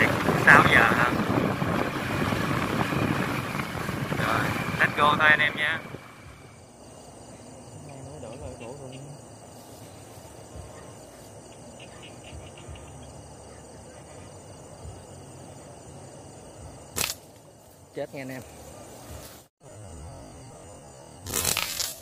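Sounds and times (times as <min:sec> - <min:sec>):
insects chirring: 0:00.0 - 0:22.0
slingshot snap: 0:17.0 - 0:17.4, 0:21.2 - 0:22.0.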